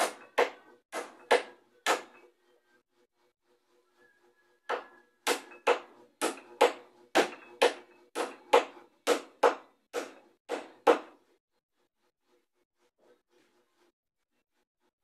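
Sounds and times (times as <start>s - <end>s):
hammer striking wood: 0.0s - 2.2s, 4.7s - 11.2s.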